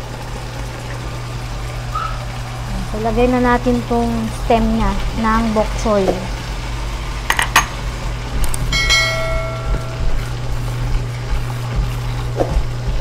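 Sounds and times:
steady low hum: 0:00.0 - 0:13.0
bright bell ding: 0:08.7 - 0:10.3.

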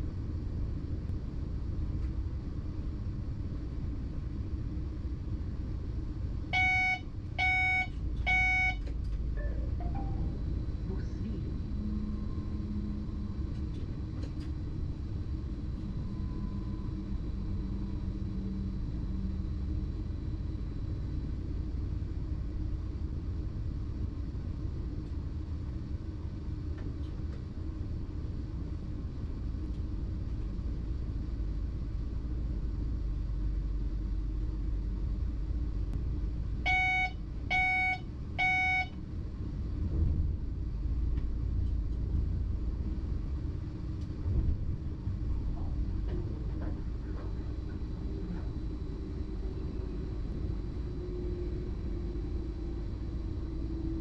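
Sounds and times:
low rumble of electric train: 0:00.0 - 0:54.0
electronic tone beeps: 0:06.6 - 0:08.8, 0:09.4 - 0:10.8, 0:36.7 - 0:39.0.

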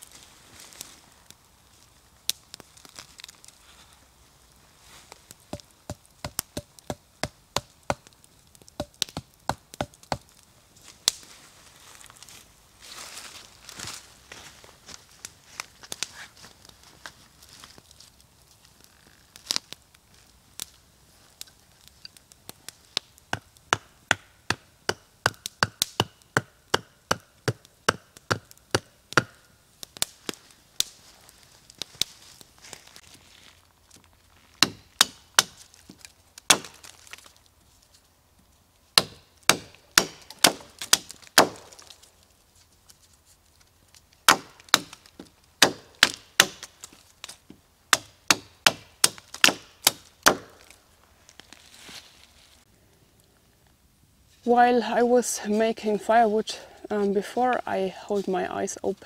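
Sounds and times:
hatchet chopping wood: 0:05.5 - 0:08.1, 0:08.8 - 0:10.2, 0:23.3 - 0:29.4, 0:34.6 - 0:35.6, 0:36.5 - 0:36.9, 0:39.0 - 0:41.8, 0:44.3 - 0:45.0, 0:45.6 - 0:46.7, 0:47.9 - 0:50.6.

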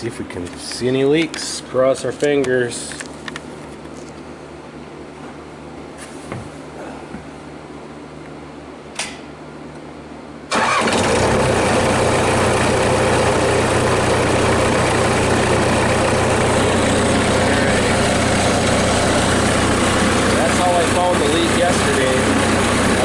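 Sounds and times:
tractor engine starting and idling: 0:10.5 - 0:23.0.

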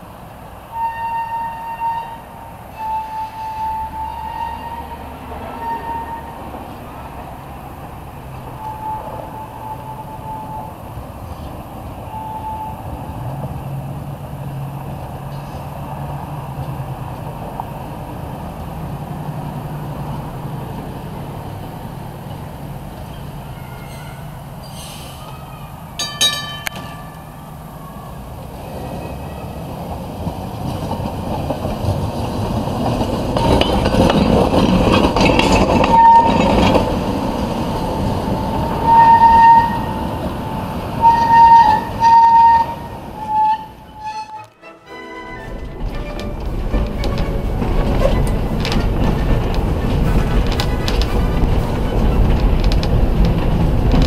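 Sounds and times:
streetcar wheels rumbling on rails: 0:00.0 - 0:54.0
ringing clang: 0:26.0 - 0:27.6.

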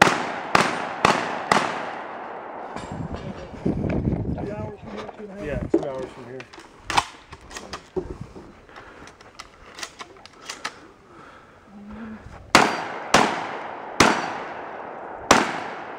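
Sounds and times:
shotgun blasts with echo: 0:00.0 - 0:02.9, 0:12.5 - 0:15.9.

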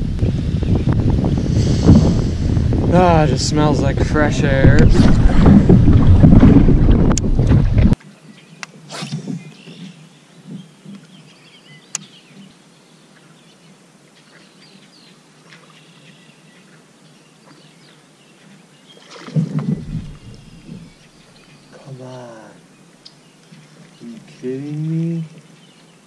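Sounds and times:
faint bird calls and chirps: 0:08.2 - 0:24.5.

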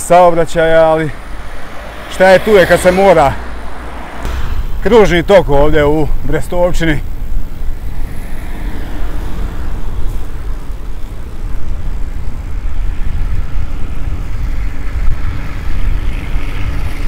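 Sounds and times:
road traffic noise: 0:00.0 - 0:17.0
wind on microphone: 0:01.2 - 0:17.0.

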